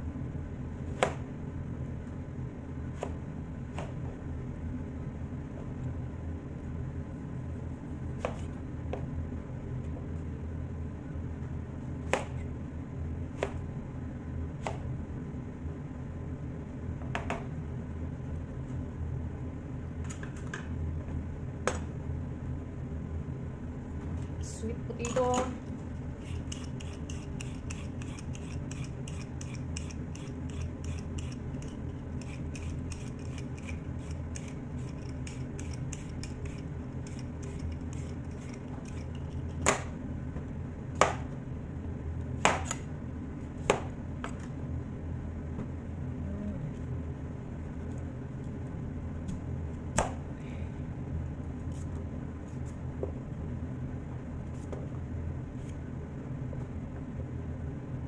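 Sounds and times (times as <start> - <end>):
steady low hum: 0.0 - 58.0
vegetable peeler scraping: 26.2 - 39.6.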